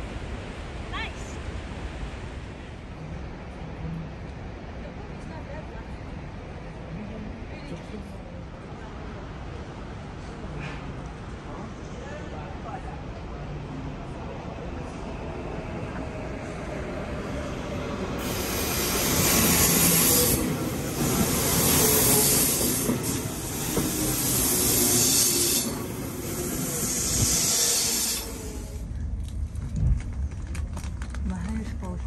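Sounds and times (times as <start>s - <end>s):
train rumble: 0.0s - 32.0s
train wheels and brakes hissing: 18.1s - 28.9s.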